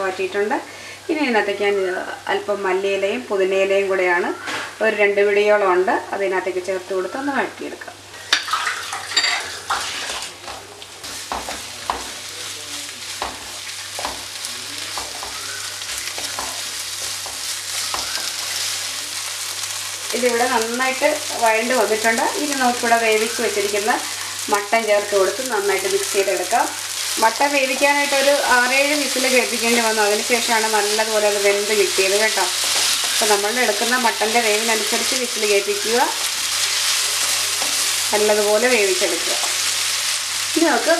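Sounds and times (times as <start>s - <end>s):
food sizzling in frying pan: 0.0s - 40.9s
spatula scraping pan: 26.9s - 35.2s.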